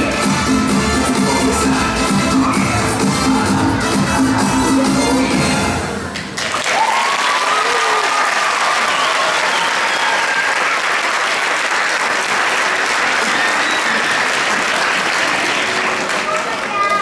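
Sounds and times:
audience applauding: 6.2s - 17.0s
people cheering: 6.4s - 17.0s.

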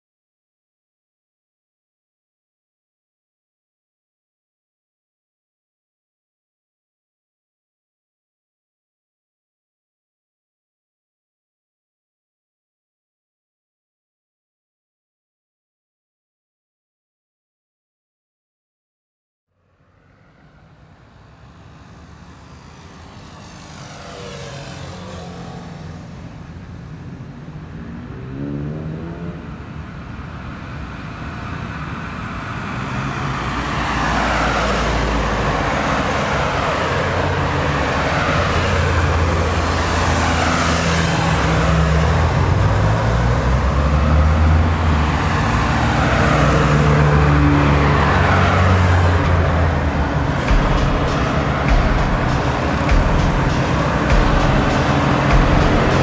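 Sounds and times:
cars passing: 19.6s - 56.0s.

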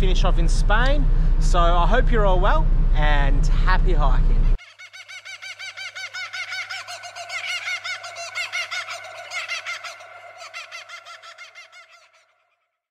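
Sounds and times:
rapid warbling chirp trill: 4.6s - 12.5s.

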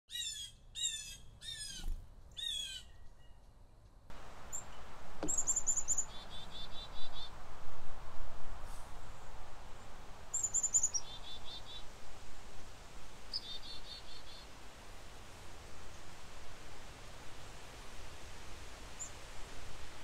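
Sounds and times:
high-pitched bird chirps: 0.1s - 3.4s, 5.3s - 7.2s
wind hiss: 4.1s - 20.0s.

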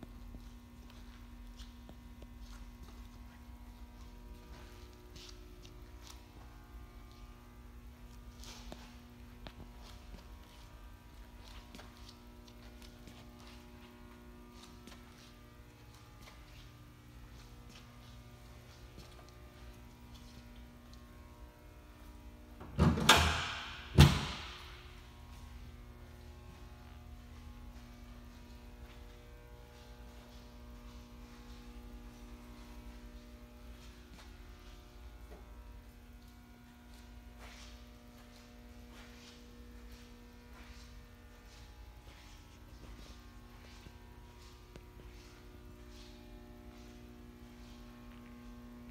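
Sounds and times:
footsteps scuffing on concrete: 0.0s - 7.4s, 8.0s - 21.1s, 24.3s - 48.9s
faint electrical mains hum: 0.0s - 48.9s
door banging shut: 22.8s - 24.5s.

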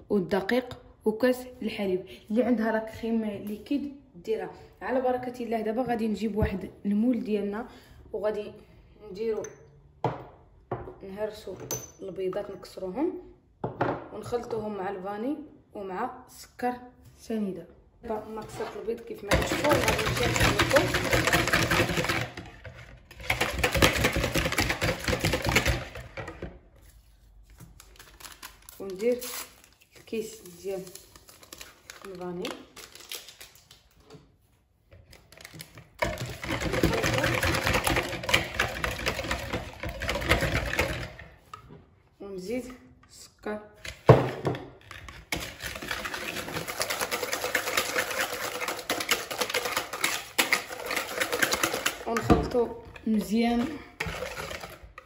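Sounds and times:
whisk beating eggs in bowl: 18.4s - 26.6s, 35.6s - 41.5s, 45.2s - 55.0s.

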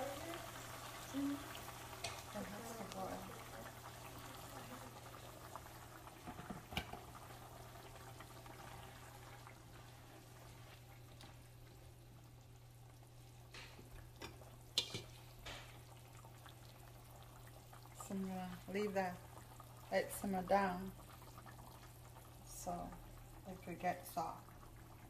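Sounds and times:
water pouring into a pan: 0.0s - 11.0s
curry bubbling: 0.0s - 25.0s.

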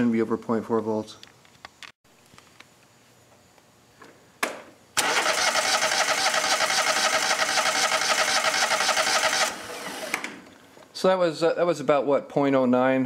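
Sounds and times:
electric starter cranking engine: 5.0s - 10.5s.

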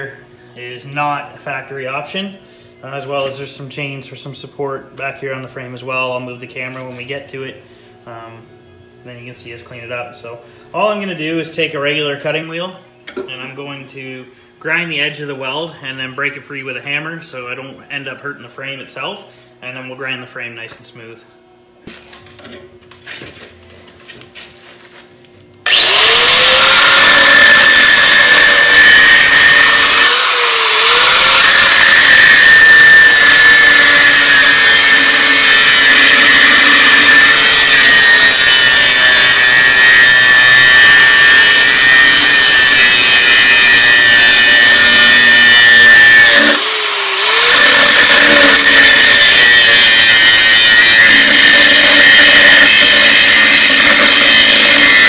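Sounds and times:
angle grinder grinding metal: 25.7s - 55.0s.

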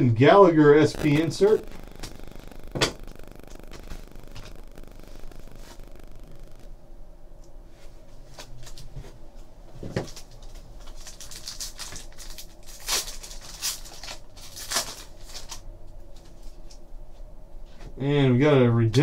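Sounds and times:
foil pack crinkling: 10.0s - 15.6s
foil pack ripping: 10.0s - 15.6s.

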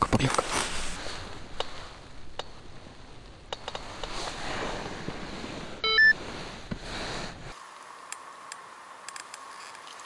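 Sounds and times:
light outdoor noise: 0.0s - 10.0s
two-tone electronic beep: 5.8s - 6.2s.

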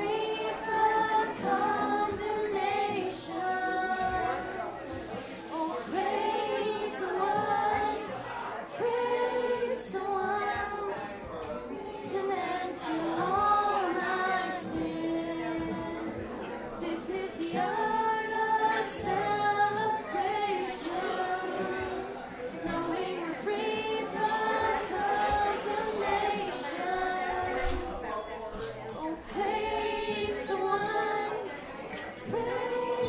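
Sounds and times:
person singing: 0.0s - 11.2s, 11.8s - 16.2s, 16.8s - 27.9s, 28.9s - 33.0s
acoustic guitar: 0.0s - 33.0s.

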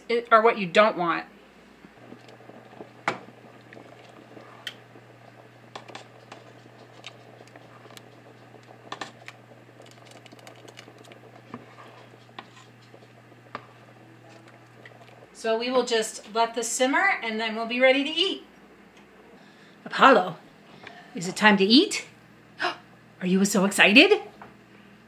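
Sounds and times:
faint low hum: 0.0s - 25.0s
spoon scraping pot: 1.9s - 15.4s.

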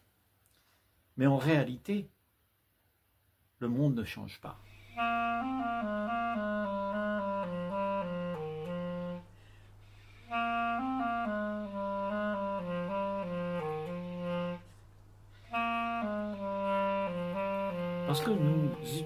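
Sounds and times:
slow solo woodwind melody: 4.6s - 19.0s.

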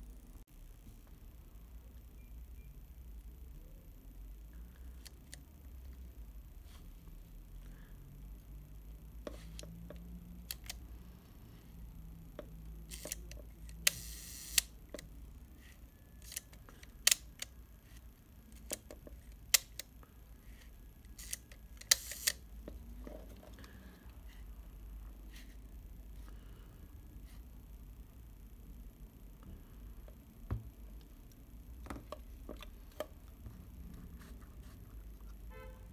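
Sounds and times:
shutter buzz: 13.8s - 14.8s
camera shutter clicks: 21.2s - 22.4s.

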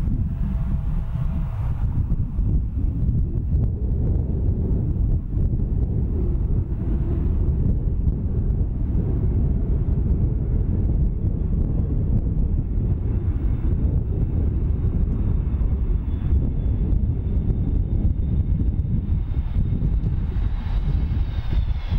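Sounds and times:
faint high jet whine: 0.0s - 21.9s
jet engines low rumble: 0.0s - 21.9s.

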